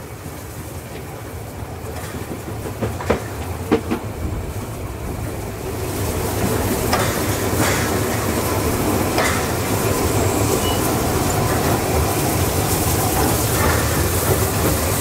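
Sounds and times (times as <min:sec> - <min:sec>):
train running gear rumble: 0:00.0 - 0:15.0
steam hiss: 0:00.1 - 0:15.0.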